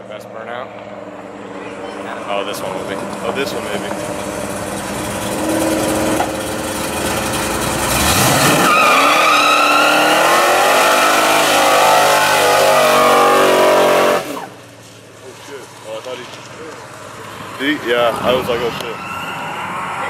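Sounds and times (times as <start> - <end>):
car engine revving: 0.4 - 19.0
tyres squealing on pavement: 3.0 - 17.6.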